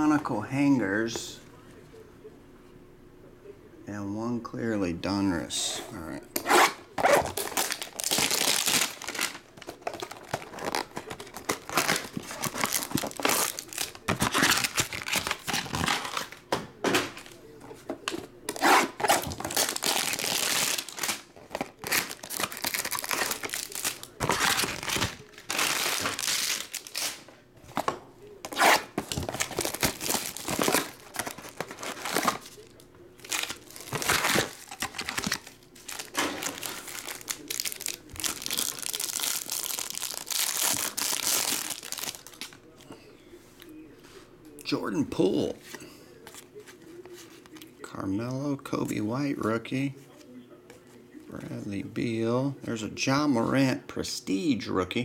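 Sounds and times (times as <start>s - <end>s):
plastic wrappers crinkling and ripping: 6.5s - 17.4s, 18.1s - 42.6s.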